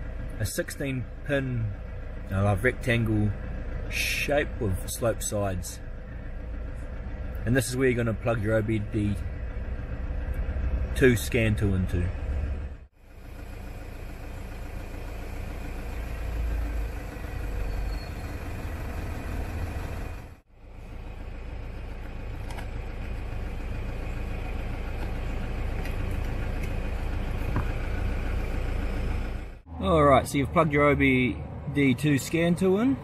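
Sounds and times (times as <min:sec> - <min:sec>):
car engine idling: 0:00.0 - 0:33.0.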